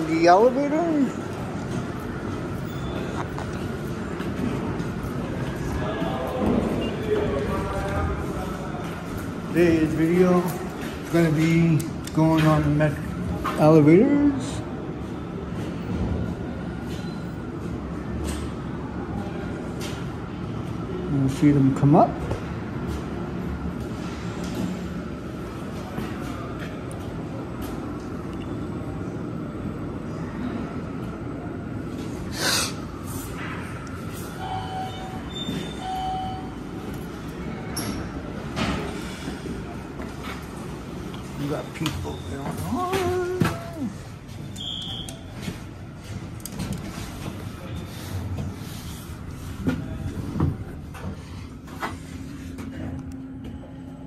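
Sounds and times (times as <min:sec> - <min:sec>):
elevator low rumble: 0:00.0 - 0:12.1, 0:12.8 - 0:54.0
elevator car rumbling: 0:32.9 - 0:54.0.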